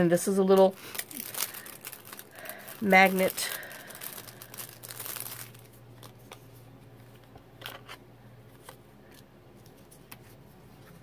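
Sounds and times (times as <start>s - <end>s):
plastic packaging crinkling: 0.3s - 8.0s.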